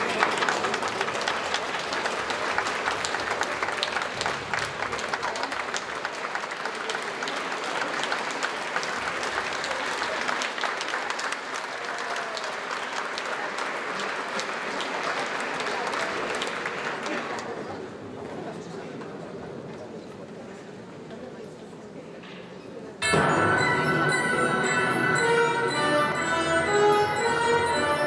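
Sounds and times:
audience applauding: 0.0 - 17.7.

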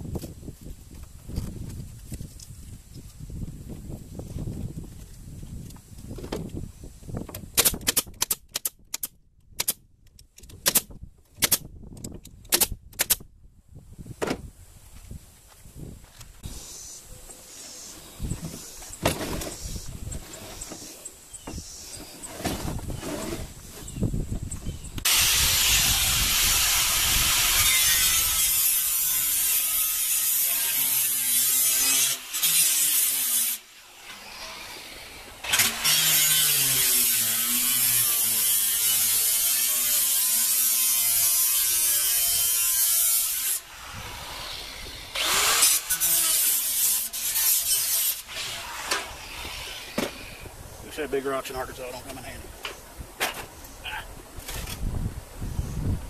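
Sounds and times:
electric saw cutting sheet metal: 25.0 - 50.4.

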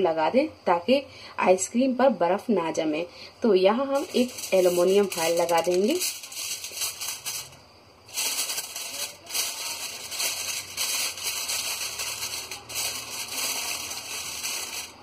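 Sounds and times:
aluminium foil crinkling: 4.0 - 15.0.

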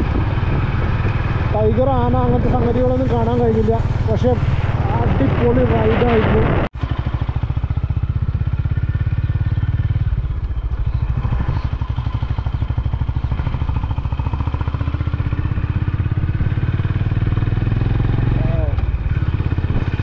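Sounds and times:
motorcycle engine running: 0.0 - 20.0.

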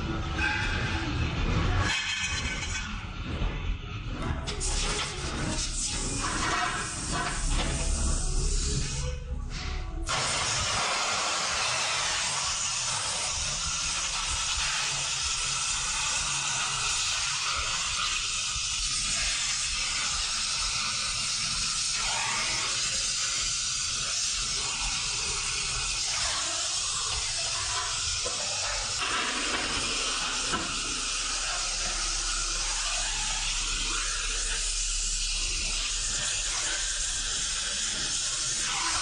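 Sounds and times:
welding torch flame hissing: 4.5 - 9.2, 10.1 - 39.0.

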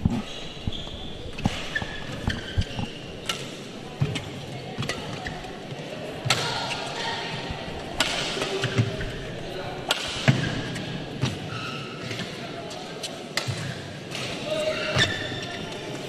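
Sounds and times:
shoes squeaking on court: 0.0 - 5.9, 10.5 - 13.2, 14.8 - 16.0.

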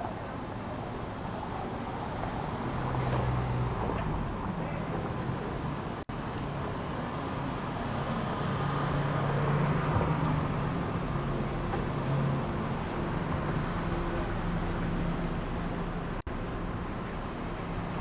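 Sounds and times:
traffic engine hum: 0.0 - 18.0.

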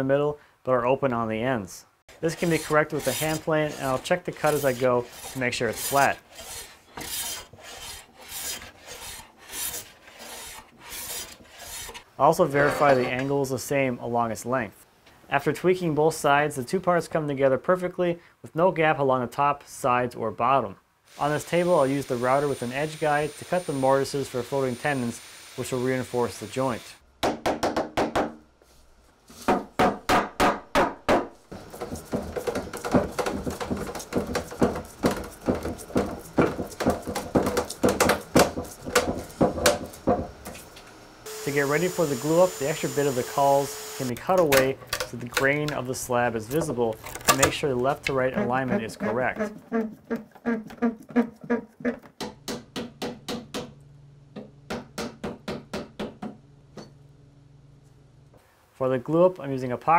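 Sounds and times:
wooden mallet knocking: 29.5 - 40.4, 52.2 - 53.7.

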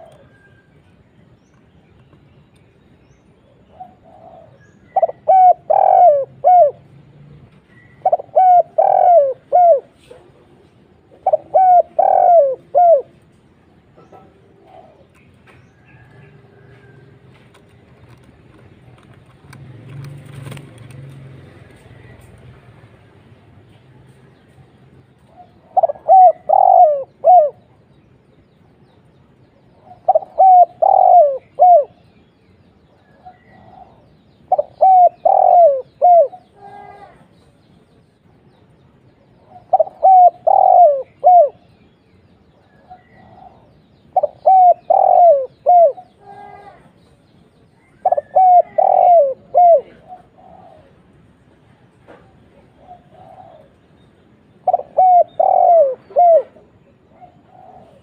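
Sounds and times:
dove cooing: 0.0 - 0.6, 3.7 - 7.1, 7.7 - 13.4, 14.1 - 15.2, 25.2 - 27.8, 29.7 - 32.1, 33.1 - 37.2, 39.4 - 41.7, 42.8 - 46.9, 47.8 - 51.4, 52.5 - 58.0.

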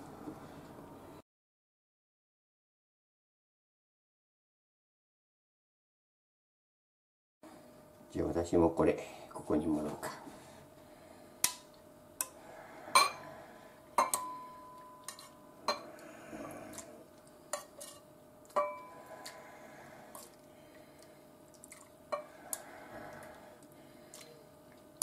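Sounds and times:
ladle clinking on metal bowl: 14.0 - 15.9, 17.5 - 18.9
soup sloshing: 20.0 - 22.6.

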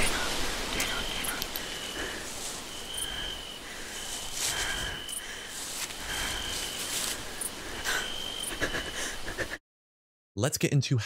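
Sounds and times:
soft steady hiss: 0.0 - 8.2
cricket chirping: 0.0 - 9.4.

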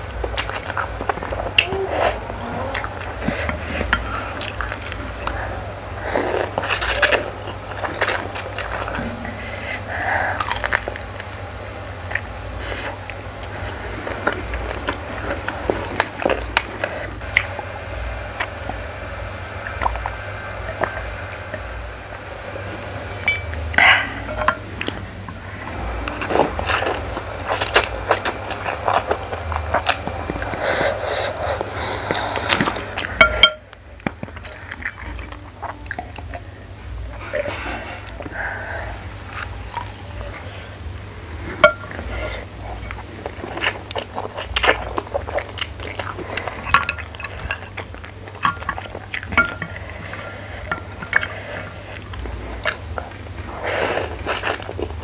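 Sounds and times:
chewing and slurping noodles: 23.4 - 55.0.

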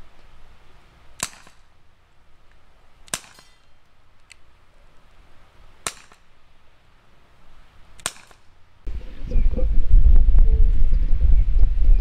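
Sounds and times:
airsoft pistol pops: 1.2 - 1.6, 5.8 - 6.2, 8.0 - 8.4.

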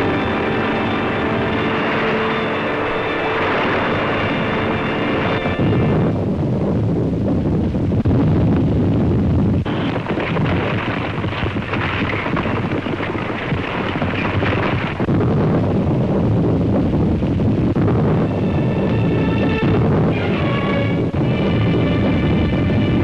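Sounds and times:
music: 0.0 - 7.6, 17.9 - 23.0
harsh high rushing noise: 0.0 - 8.0
volcano eruption rumble: 0.0 - 23.0.

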